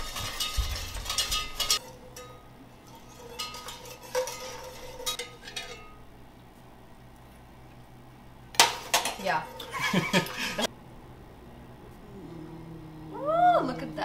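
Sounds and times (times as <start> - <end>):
whisk scraping a metal pot: 0.0 - 5.8.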